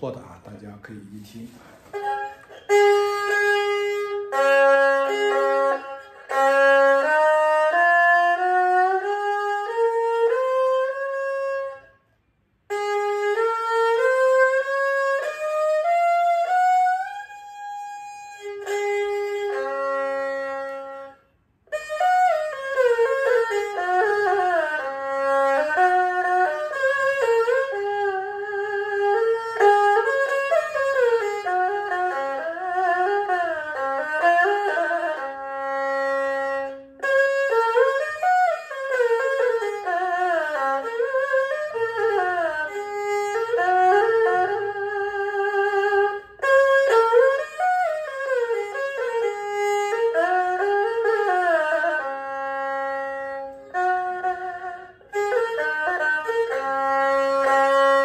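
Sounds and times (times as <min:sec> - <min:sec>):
erhu melody with sliding notes: 0:01.1 - 0:58.0.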